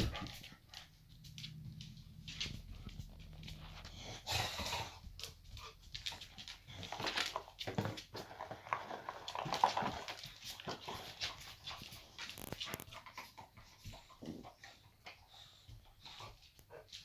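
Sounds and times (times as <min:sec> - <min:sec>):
paws and rubber toy on floor: 0:00.0 - 0:17.0.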